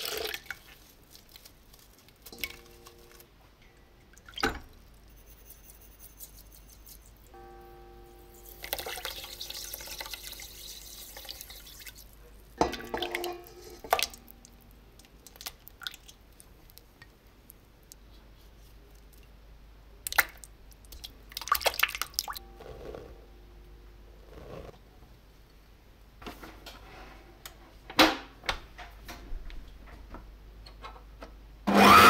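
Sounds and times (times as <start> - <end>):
dripping: 0.0 - 3.2, 4.1 - 4.9, 8.5 - 17.5, 20.1 - 22.4
sugar pouring hiss: 8.3 - 12.2.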